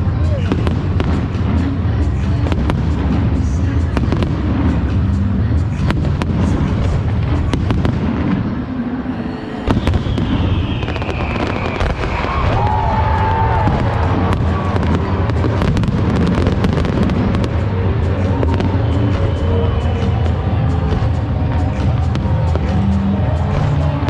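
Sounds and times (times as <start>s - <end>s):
fireworks bangs and crackling: 0.0s - 9.0s, 9.6s - 24.0s.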